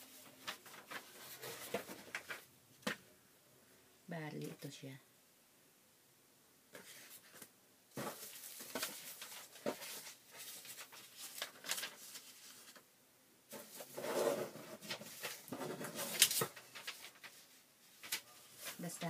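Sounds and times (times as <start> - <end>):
paper rustling: 0.0 - 3.0, 6.7 - 12.8, 13.5 - 19.0.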